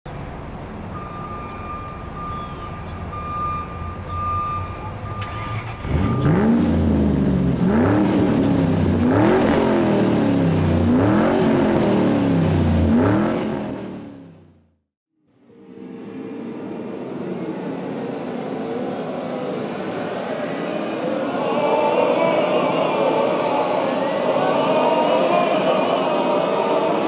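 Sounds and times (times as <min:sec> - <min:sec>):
car engine revving and accelerating: 0:05.2 - 0:14.5.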